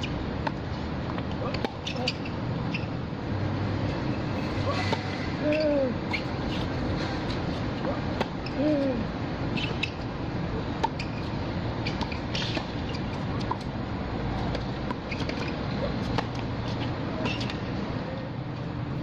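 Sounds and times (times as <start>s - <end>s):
shoe squeaks: 1.4s - 3.0s, 4.0s - 8.9s, 9.5s - 10.1s, 10.8s - 13.7s, 14.3s - 17.7s
racket hitting tennis ball: 4.5s - 8.8s, 10.7s - 13.7s, 14.3s - 17.6s.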